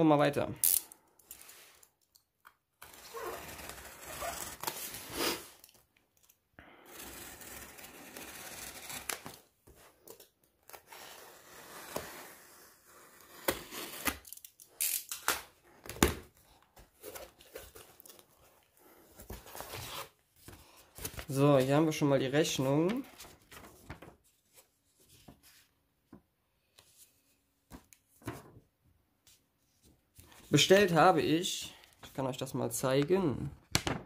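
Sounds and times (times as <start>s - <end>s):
tape ripping off cardboard: 7.4s - 9.5s, 13.2s - 15.5s
cardboard rustling: 16.2s - 21.9s.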